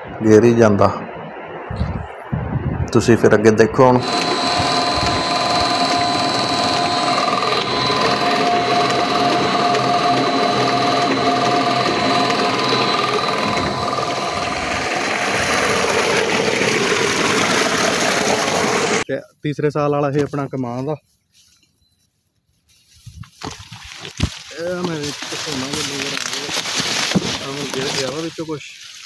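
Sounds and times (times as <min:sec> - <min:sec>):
electric pump motor whine: 0:04.0 - 0:19.0
pumped water gushing: 0:04.0 - 0:19.0.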